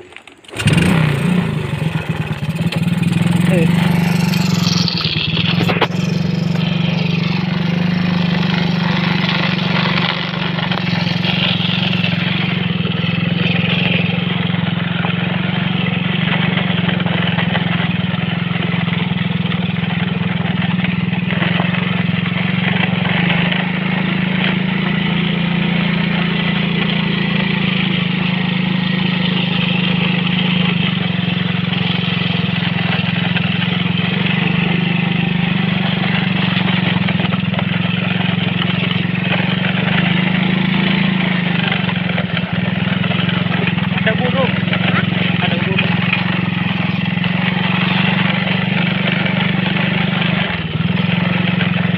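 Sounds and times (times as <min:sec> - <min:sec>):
small motorcycle engine running: 0:00.0 - 0:51.9.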